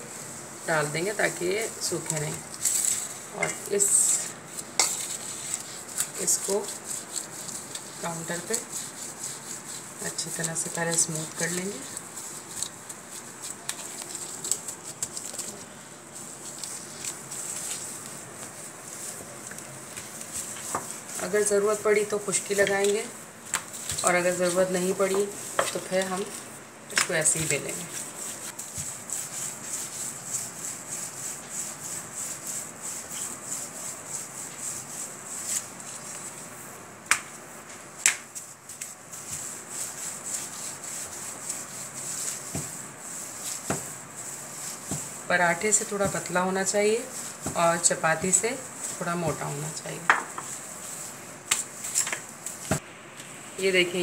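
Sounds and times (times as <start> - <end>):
hand rubbing and pressing dough: 0.6 - 52.8
light taps on countertop: 50.0 - 50.5.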